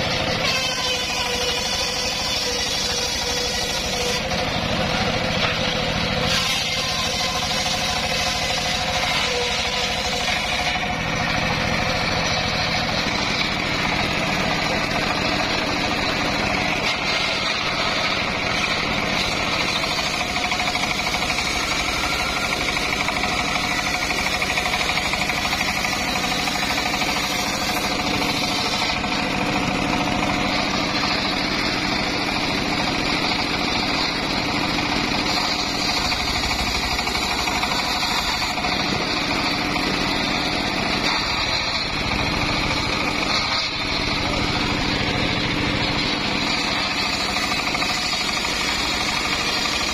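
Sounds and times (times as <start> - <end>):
engine running under load: 0.0 - 49.9
circular saw blade ripping log: 0.3 - 11.8, 14.9 - 29.4.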